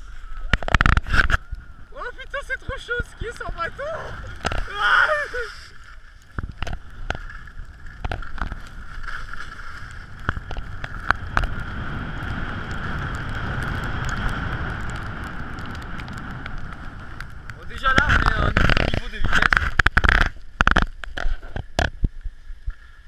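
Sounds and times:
wind rumbling on microphone: 0.0s - 23.0s
snow hissing under board edges: 1.0s - 6.2s, 6.9s - 17.9s.

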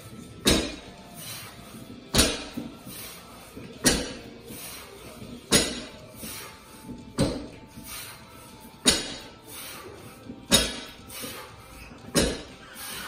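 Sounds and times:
barbell thudding on rubber mats: 0.4s - 0.9s, 2.1s - 2.7s, 3.8s - 4.3s, 5.5s - 6.0s, 7.1s - 7.6s, 8.8s - 9.3s, 10.5s - 11.0s, 12.1s - 12.6s.

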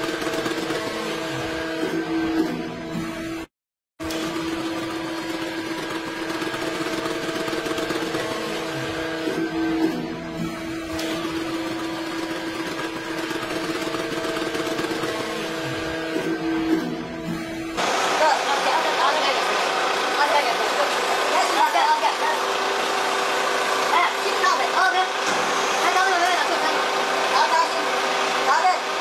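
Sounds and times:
hydraulic press humming: 0.0s - 29.0s.

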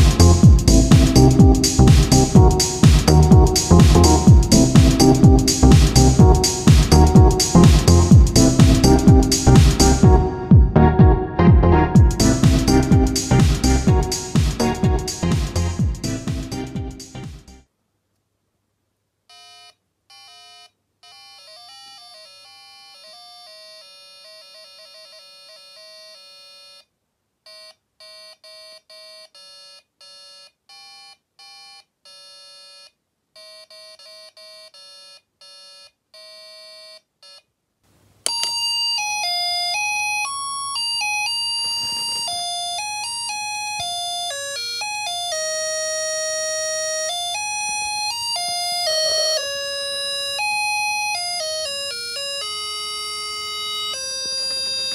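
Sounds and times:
low hum: 7.0s - 17.3s.

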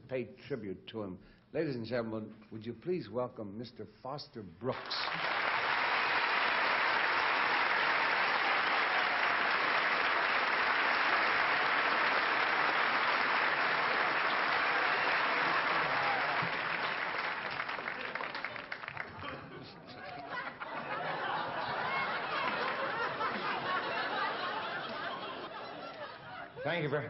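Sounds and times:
audience applauding: 4.8s - 26.1s.

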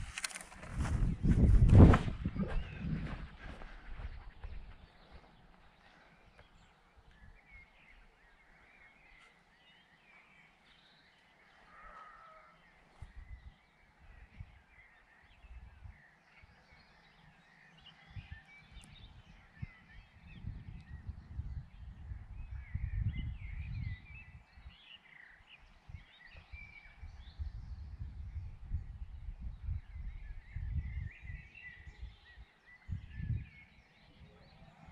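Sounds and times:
wind gusting on microphone: 0.0s - 5.8s, 13.0s - 16.8s, 17.8s - 24.8s, 25.6s - 34.9s
birds chirping and calling: 0.0s - 34.9s.

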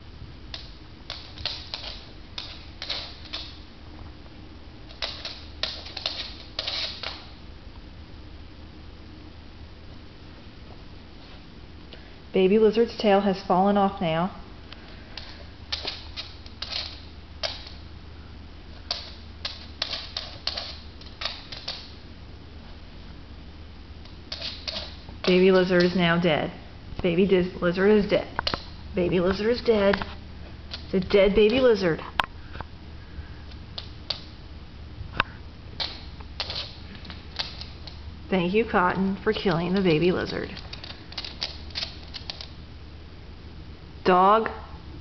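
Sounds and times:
low steady hum: 0.0s - 45.0s
dog toenails clicking on wood: 0.5s - 3.6s, 4.9s - 7.3s, 15.1s - 17.8s, 18.9s - 22.0s, 24.0s - 26.1s, 30.7s - 31.8s, 33.8s - 34.4s, 35.8s - 38.0s, 39.4s - 42.6s.

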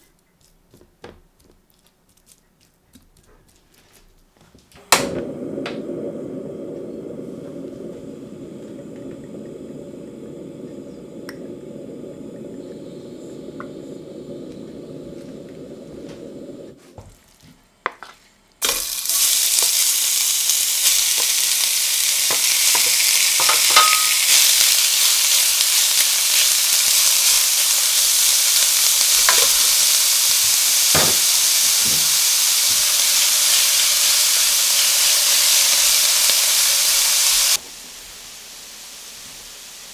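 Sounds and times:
burner flame rushing: 4.8s - 16.8s
gas stove igniter click: 4.9s - 16.3s
steak sizzling in a pan: 5.0s - 16.8s, 18.6s - 39.9s.

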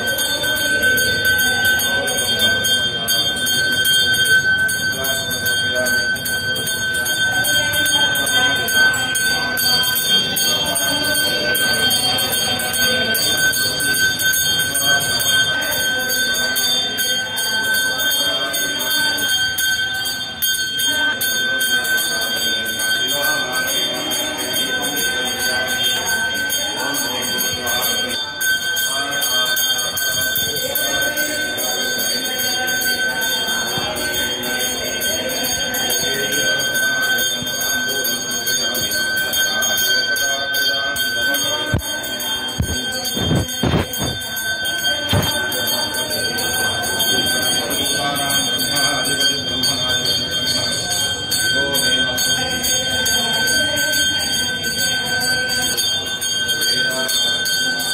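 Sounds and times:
temple bell rung rapidly: 0.0s - 57.9s
voices: 0.0s - 57.9s.

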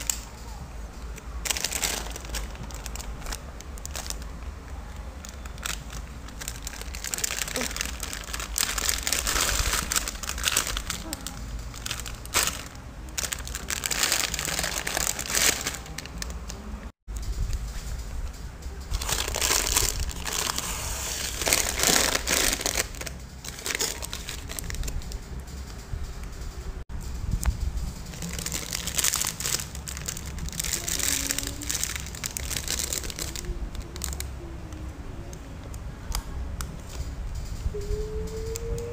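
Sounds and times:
plastic packaging crinkling: 1.1s - 16.7s, 18.9s - 25.2s, 28.1s - 34.4s.

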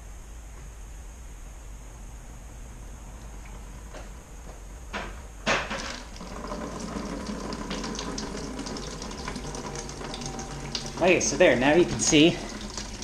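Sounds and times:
water splattering from leaks: 5.7s - 13.0s
water surging through a hose: 6.0s - 13.0s.

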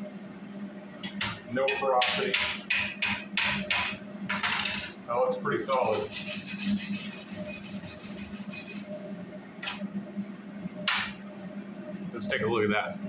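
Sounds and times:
steady low hum: 0.0s - 13.0s
wire brush scrubbing metal: 5.8s - 8.9s.

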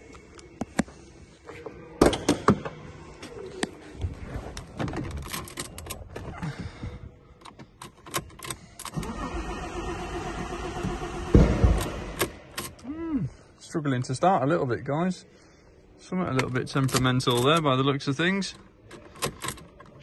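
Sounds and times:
key going into ignition: 5.0s - 6.1s, 7.4s - 9.2s, 18.9s - 20.0s
starter cranking engine: 8.8s - 12.3s.

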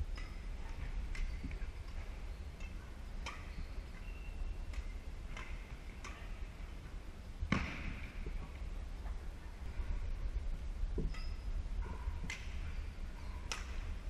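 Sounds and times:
rackets striking shuttlecock: 0.1s - 6.6s, 13.4s - 14.0s.

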